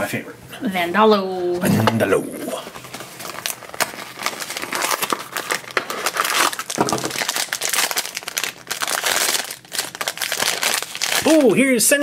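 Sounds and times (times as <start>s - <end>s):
foil bag crinkling: 2.6s - 11.8s.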